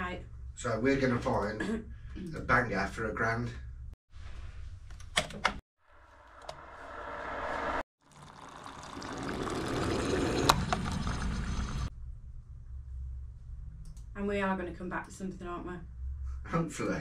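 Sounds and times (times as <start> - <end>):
hot water pouring into cup: 8.0 - 11.9.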